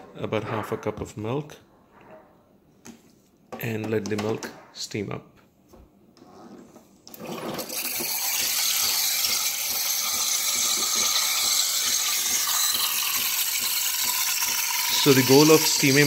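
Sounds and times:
steam wand hissing: 7.7 - 16.0.

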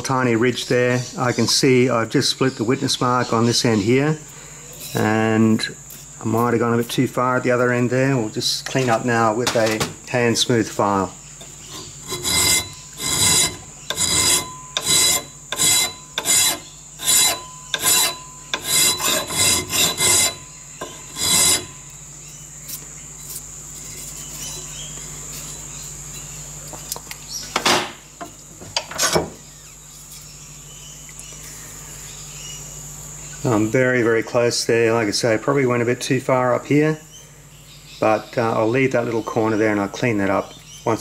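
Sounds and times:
file stroking metal edge: 11.7 - 21.9.

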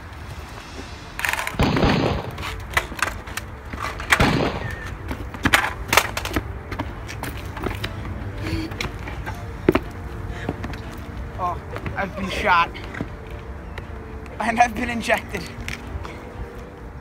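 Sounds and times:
gunshots: 1.2 - 2.5, 4.1 - 4.9.

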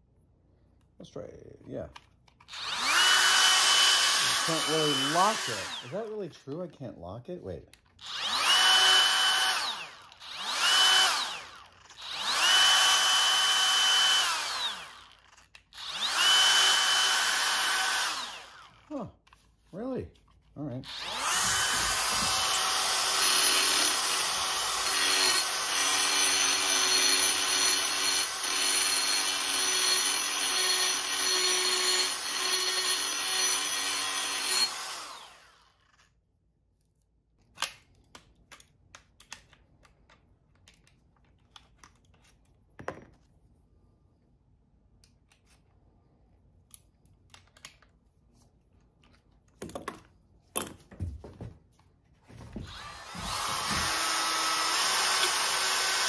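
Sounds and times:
die grinder whining on metal: 2.5 - 6.1, 8.0 - 18.9, 20.9 - 35.8, 52.7 - 56.0
tool handling clicks and taps: 37.4 - 43.3, 46.6 - 48.0.

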